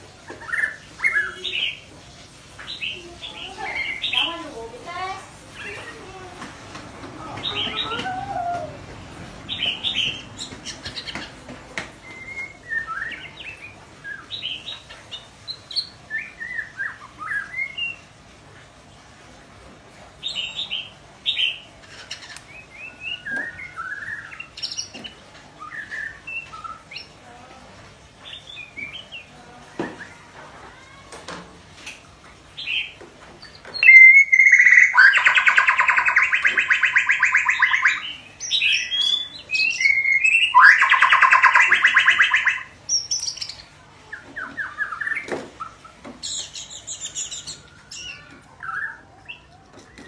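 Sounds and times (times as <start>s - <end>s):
bird chirping and whistling: 12.0s - 14.6s, 15.8s - 18.0s, 33.7s - 43.6s.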